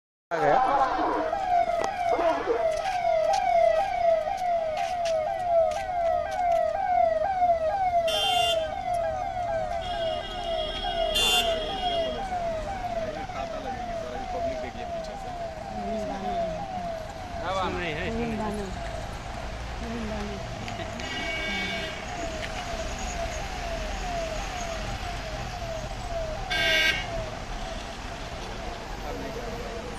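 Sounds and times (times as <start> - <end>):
high-tone siren blasts: 0.3 - 29.9
siren yelping: 0.3 - 29.9
vehicle horn blast: 8.1 - 8.7, 9.8 - 12.2, 21.0 - 22.1.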